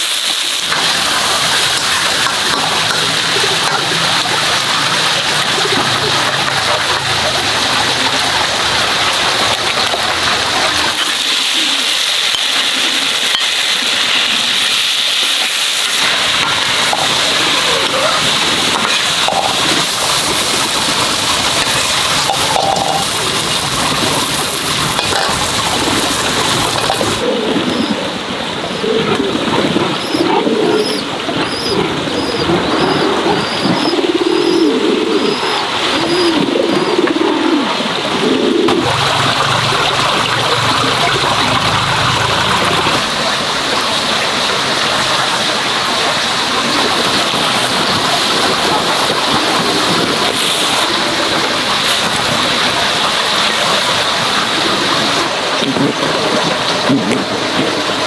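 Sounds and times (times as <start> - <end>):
pigeons cooing: 0.8 - 14.8, 16.0 - 43.6.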